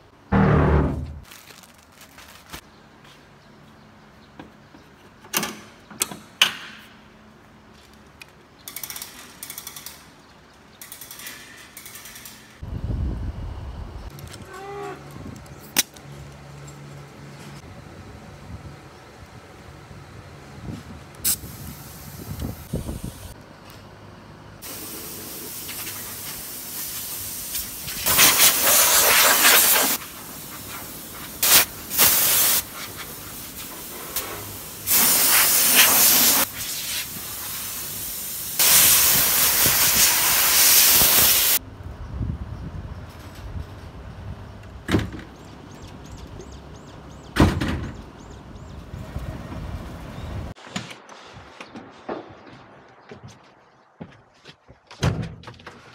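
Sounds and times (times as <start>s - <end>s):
sharp knocks: 0.3s - 1.2s
pressure washer spraying: 24.6s - 41.6s.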